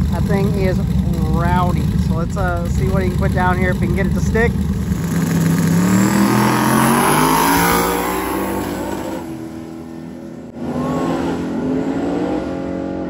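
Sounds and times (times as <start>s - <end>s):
truck engines at full throttle: 0.0s - 13.0s.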